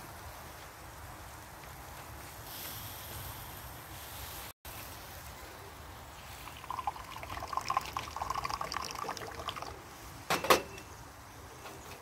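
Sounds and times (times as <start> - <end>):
tea pouring into glass: 6.4 - 9.8.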